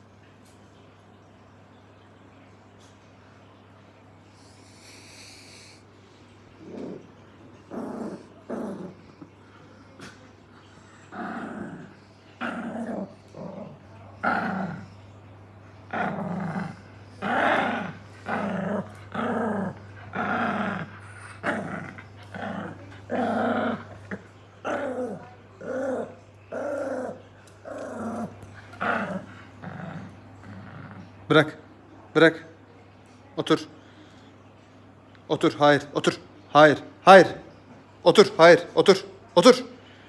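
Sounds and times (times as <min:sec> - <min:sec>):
small dog play-growling: 0:04.2 - 0:31.7.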